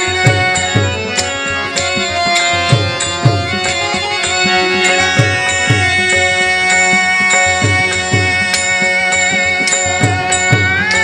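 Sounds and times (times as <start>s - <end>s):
held melodic notes: 0.0s - 11.0s
hand drum with sliding bass: 0.1s - 6.7s.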